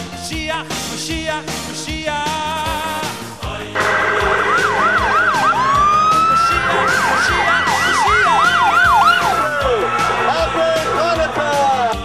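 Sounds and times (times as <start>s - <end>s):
police siren yelp and wail: 3.8s - 11.5s.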